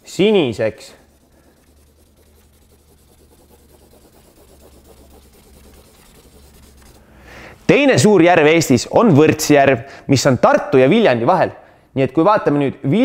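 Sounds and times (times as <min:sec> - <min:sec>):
marker scribbling on paper: 0:00.0 - 0:07.2
steady low hum: 0:00.0 - 0:07.7.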